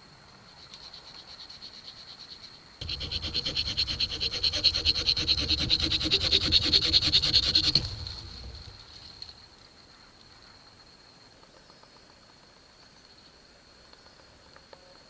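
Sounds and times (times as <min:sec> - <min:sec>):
knife sawing through a stem: 0:02.8 - 0:08.8.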